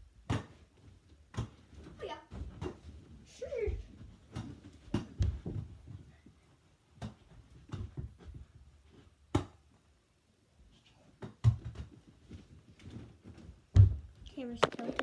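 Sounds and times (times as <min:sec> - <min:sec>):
ball bouncing and being caught: 0:00.2 - 0:00.6, 0:01.3 - 0:02.9, 0:04.3 - 0:05.7, 0:07.0 - 0:08.4, 0:09.3 - 0:09.6, 0:11.2 - 0:11.9, 0:13.7 - 0:15.0.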